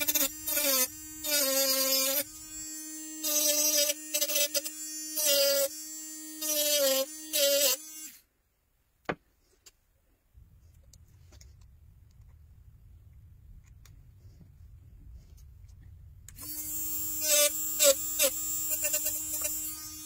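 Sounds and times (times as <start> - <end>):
electric tool buzzing whine: 0.0 - 8.3, 16.3 - 20.0.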